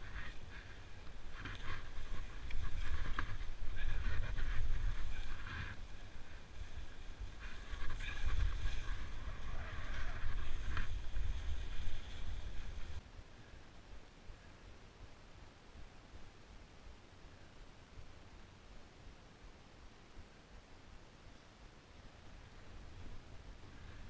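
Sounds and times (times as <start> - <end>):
skis hissing through snow: 0.0 - 13.0
wind rumbling on microphone: 0.0 - 24.0.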